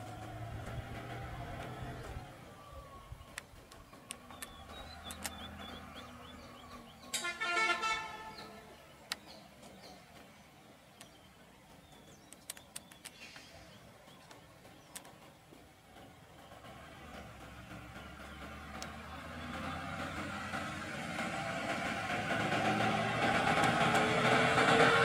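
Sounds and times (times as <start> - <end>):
faint engine idling: 0.0 - 25.0
vehicle horn: 7.2 - 8.7.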